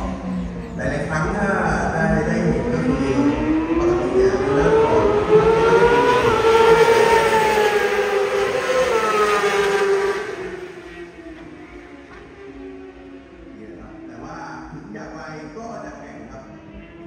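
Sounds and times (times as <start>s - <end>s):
motorbike engines at high revs: 2.5s - 12.4s.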